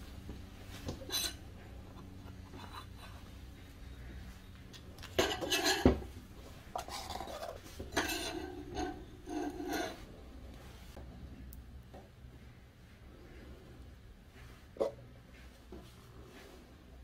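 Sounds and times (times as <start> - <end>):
metal and wood scraping: 0.7 - 3.4, 4.8 - 11.0.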